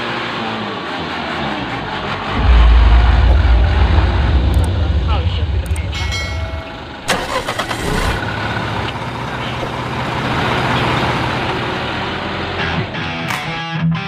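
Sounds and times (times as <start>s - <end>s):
truck engine running: 0.3s - 12.9s.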